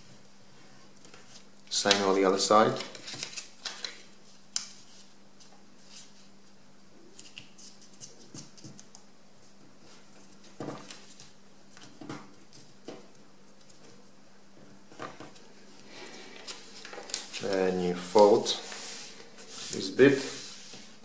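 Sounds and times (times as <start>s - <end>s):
faint steady hum: 0.0s - 21.0s
paper rustling and crinkling: 1.1s - 6.3s, 15.1s - 21.0s.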